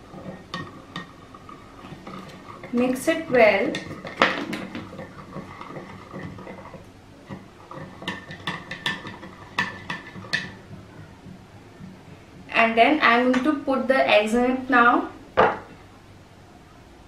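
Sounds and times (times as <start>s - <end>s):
spoon stirring water: 0.0s - 12.2s.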